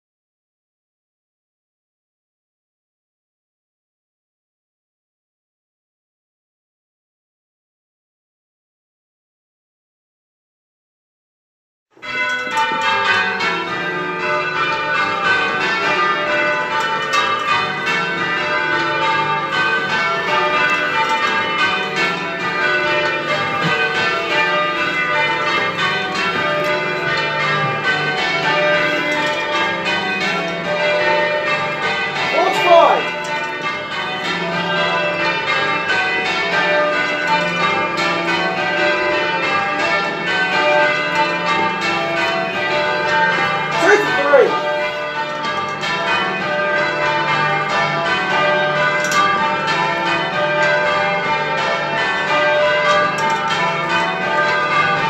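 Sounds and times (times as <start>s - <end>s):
church bells ringing: 12.0s - 55.0s
man calling out: 32.3s - 33.1s, 43.8s - 44.7s.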